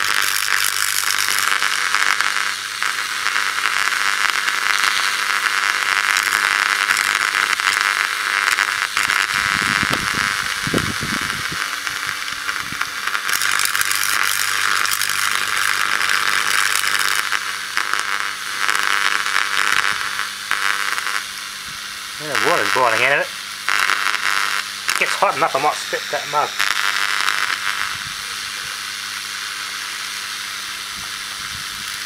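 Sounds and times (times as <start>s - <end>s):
electric arc crackling and sizzling: 0.0s - 32.0s
transformer low hum: 8.8s - 16.5s.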